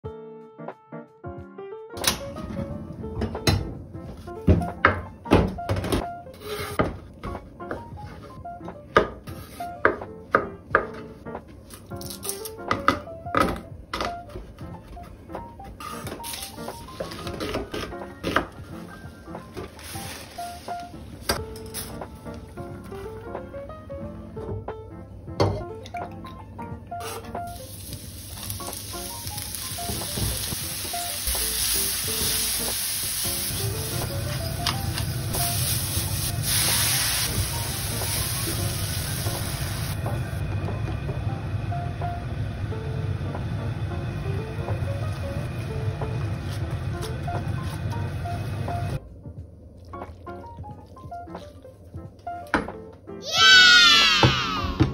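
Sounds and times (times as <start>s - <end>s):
light background music: 0.0s - 54.9s
vegetables sizzling in a frying pan: 27.0s - 40.0s.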